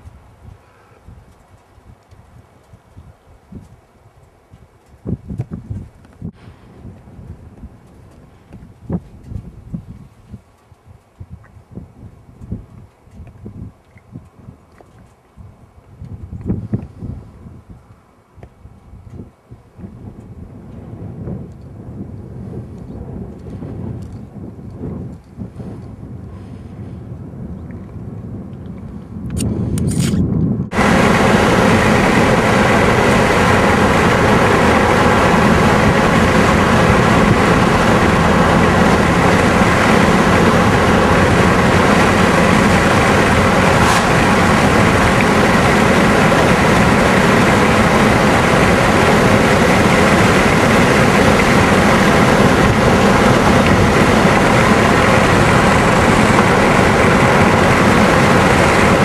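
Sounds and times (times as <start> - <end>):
vehicle road and engine noise: 29.4 - 59.0.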